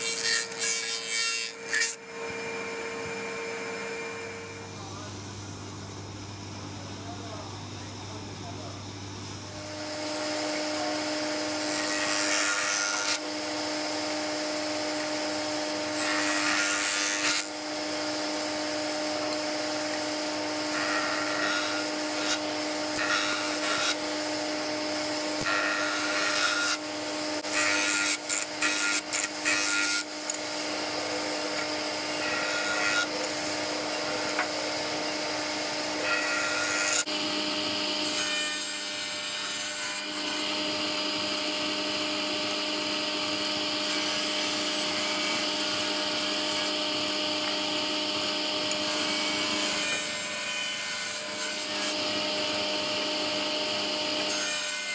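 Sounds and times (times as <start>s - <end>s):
jointer cutting wood: 0.0s - 4.6s, 9.6s - 54.9s
table saw running: 0.0s - 5.1s, 9.4s - 54.9s
jointer motor hum: 51.6s - 54.4s.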